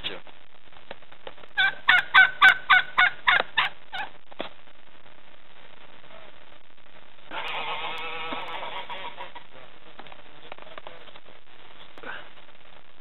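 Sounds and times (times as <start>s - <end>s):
turkey gobbling: 1.6s - 4.1s, 7.3s - 9.5s.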